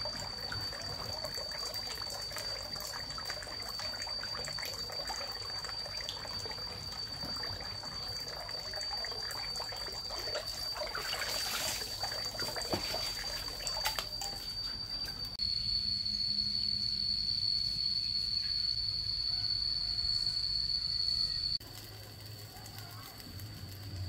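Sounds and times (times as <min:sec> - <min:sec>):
water trickling and splashing: 0:00.0 - 0:15.4
steady high-pitched whine: 0:00.0 - 0:24.0.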